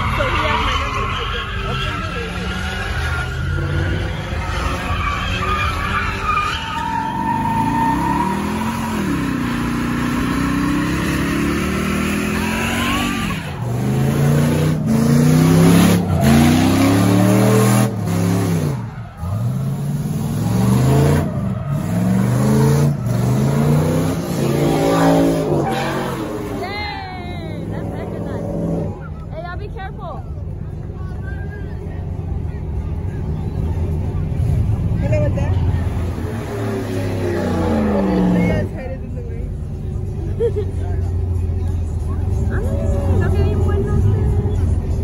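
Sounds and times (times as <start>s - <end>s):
tyres squealing on pavement: 0.0s - 27.3s
car engines revving: 0.0s - 45.0s.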